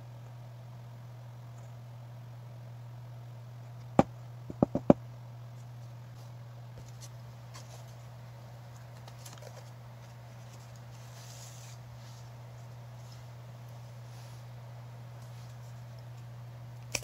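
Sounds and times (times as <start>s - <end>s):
low steady hum: 0.0s - 17.0s
plastic tube tapping table: 4.5s - 5.0s
paper wrapper crinkling: 8.8s - 11.8s.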